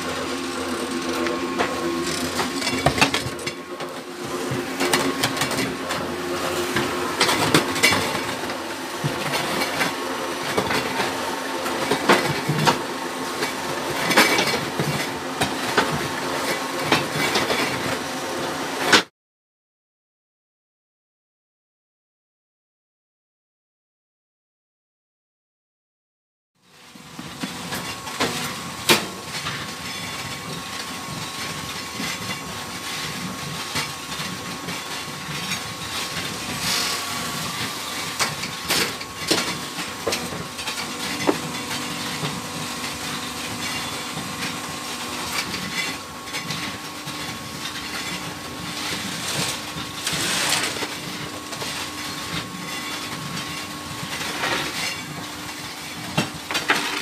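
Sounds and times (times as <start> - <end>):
hydraulic power pack humming: 0.0 - 15.8
low machine tone: 0.0 - 17.8, 35.2 - 55.0.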